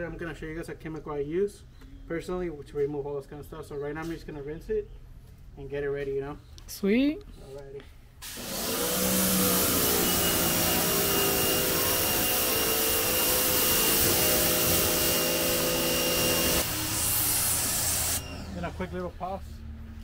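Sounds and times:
pressure washer water jet spraying: 8.2s - 18.9s
pressure washer motor hum: 8.2s - 19.9s.

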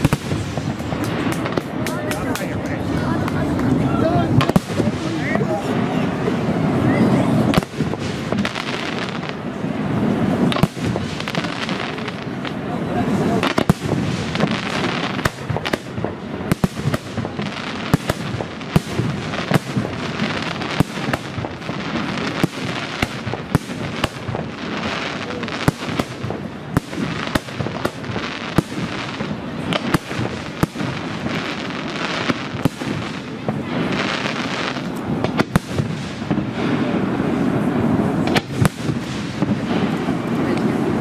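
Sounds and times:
firework shells bursting: 0.0s - 5.5s
continuous noisy background: 0.0s - 41.0s.

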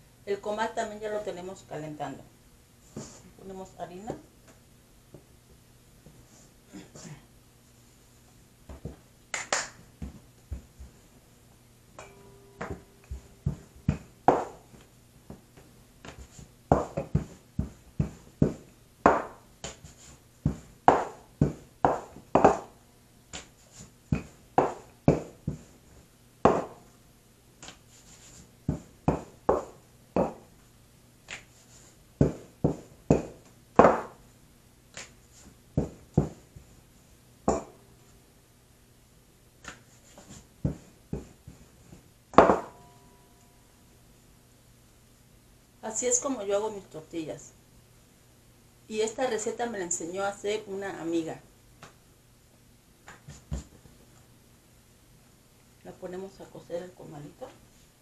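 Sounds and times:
faint low hum: 0.0s - 58.0s
rolling pin knocking on board: 12.0s - 15.4s, 16.0s - 19.8s, 20.4s - 22.7s, 24.1s - 25.7s, 26.4s - 26.8s, 28.7s - 30.5s, 32.2s - 34.2s, 35.8s - 36.4s, 37.5s - 37.8s, 42.4s - 42.8s.

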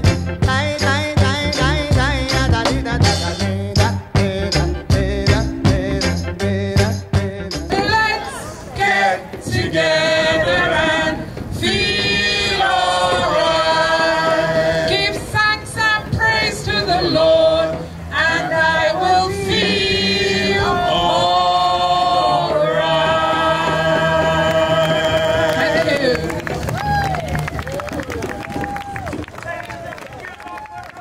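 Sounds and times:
group singing into microphones: 0.4s - 26.4s.

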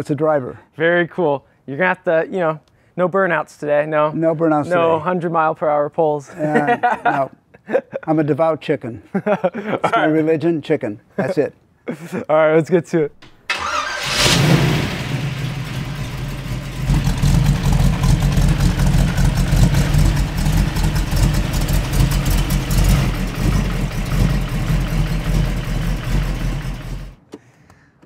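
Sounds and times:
car engine idling: 13.5s - 27.2s.

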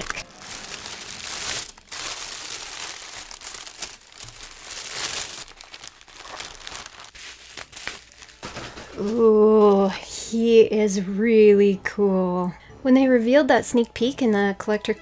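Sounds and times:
packaging crinkling: 0.0s - 9.3s.

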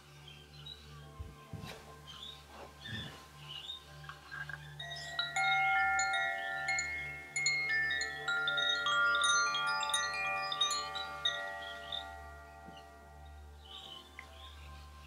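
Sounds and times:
wind chime ringing: 4.8s - 14.6s.

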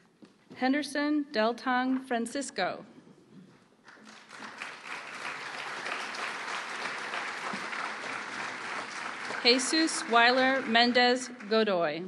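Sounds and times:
audience applauding: 3.9s - 11.5s.

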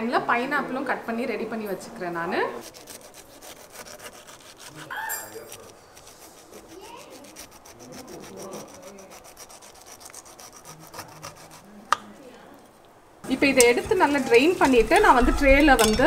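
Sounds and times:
knife sawing through pineapple rind: 2.6s - 12.0s.

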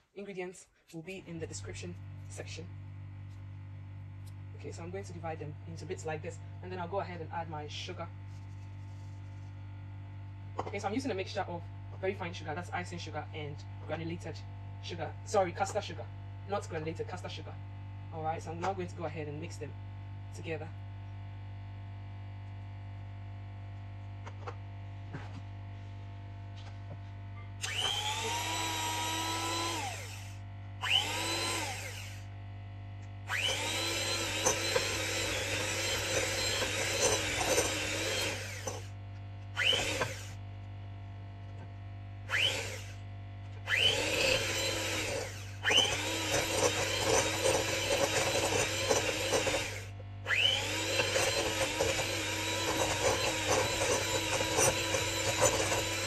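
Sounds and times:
electric hand mixer whining: 27.6s - 32.3s, 33.3s - 39.0s, 39.6s - 40.4s, 42.3s - 43.0s, 43.6s - 56.0s.

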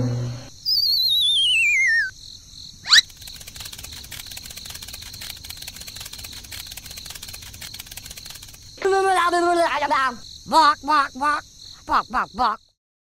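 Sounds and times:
descending wobbling whistle: 0.0s - 2.1s, 2.8s - 3.0s
crickets chirping: 0.0s - 12.8s
rising whistle swoop: 0.4s - 2.1s, 2.8s - 3.0s.

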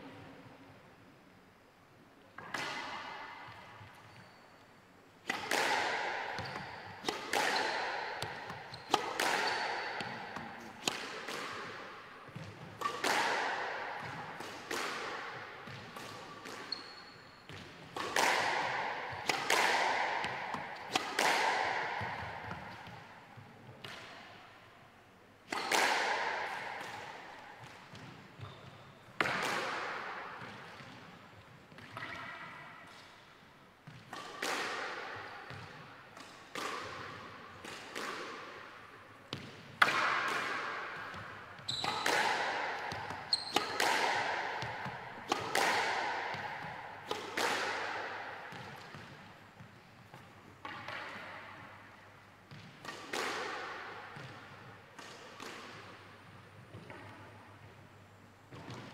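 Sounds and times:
squash ball smacks: 5.2s - 16.7s, 17.5s - 24.1s, 25.4s - 28.4s, 29.2s - 31.0s, 33.8s - 51.8s, 52.5s - 56.0s.

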